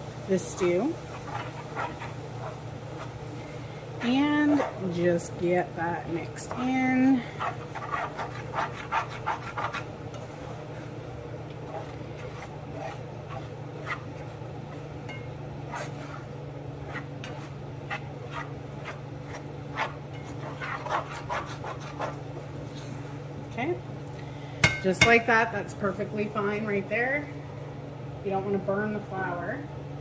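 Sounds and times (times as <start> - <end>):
steady low hum: 0.0 - 30.0
spatula scraping frying pan: 0.4 - 23.1.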